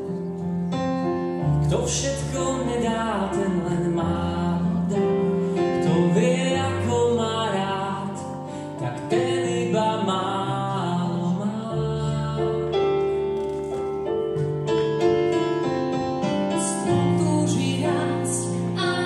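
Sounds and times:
keyboard chords: 0:00.0 - 0:19.0
person singing: 0:16.6 - 0:19.0.

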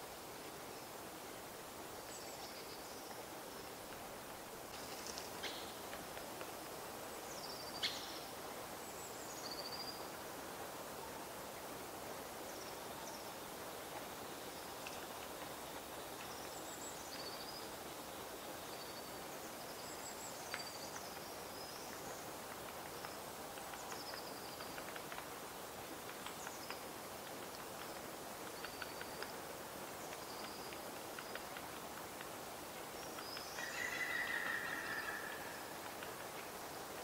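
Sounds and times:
steady outdoor hiss: 0:00.0 - 0:37.0
woodpecker tapping on bark: 0:21.9 - 0:25.4, 0:26.0 - 0:29.4, 0:30.0 - 0:32.3, 0:33.0 - 0:36.5
small birds chirping: 0:26.0 - 0:31.8.

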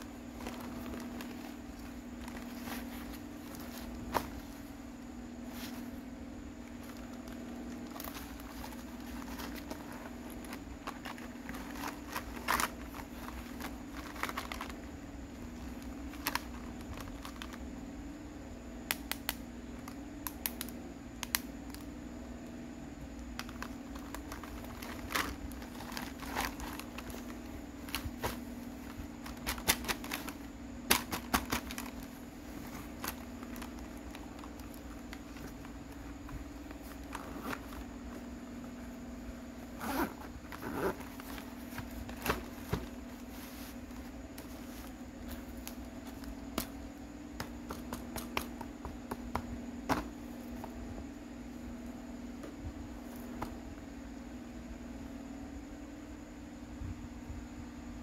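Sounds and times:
cloth rustling: 0:00.0 - 0:17.6, 0:23.5 - 0:46.8.

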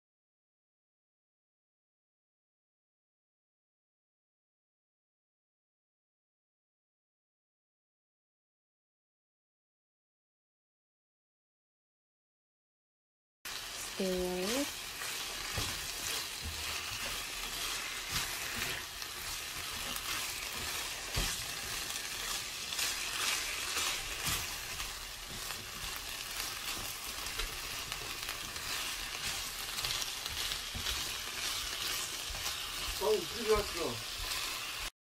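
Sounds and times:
food sizzling in a frying pan: 0:13.5 - 0:35.0.

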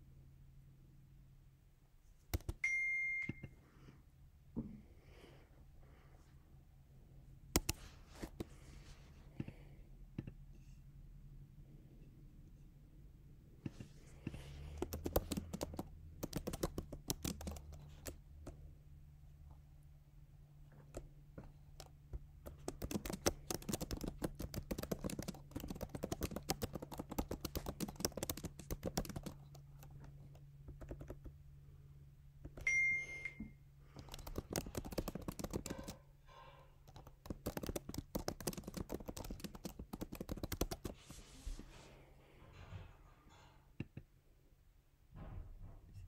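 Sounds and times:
typing on laptop keyboard: 0:02.3 - 0:02.6, 0:07.5 - 0:08.5, 0:14.3 - 0:18.6, 0:20.8 - 0:31.4, 0:33.9 - 0:36.1, 0:36.8 - 0:41.0.

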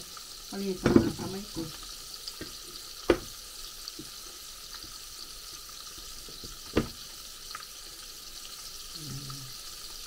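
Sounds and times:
hot oil sizzling: 0:00.0 - 0:10.0
sharp knock: 0:03.1 - 0:03.3.

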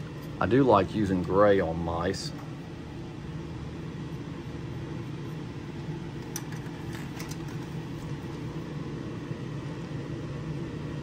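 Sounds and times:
exhaust fan humming: 0:00.0 - 0:11.0.

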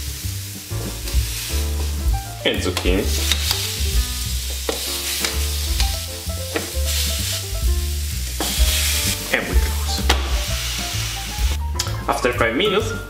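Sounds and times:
vegetables sizzling on a grill: 0:00.0 - 0:11.6
background music: 0:00.0 - 0:13.0.

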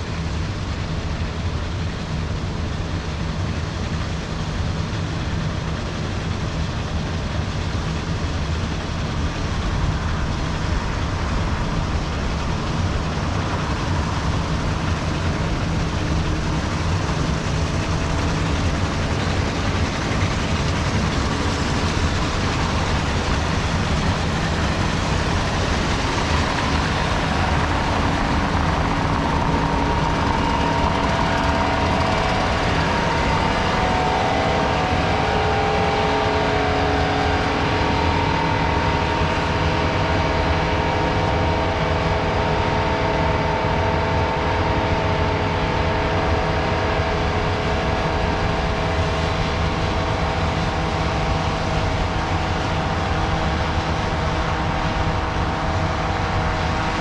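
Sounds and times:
whining tones drifting in pitch: 0:05.0 - 0:57.0
machine rushing noise: 0:06.3 - 0:57.0.

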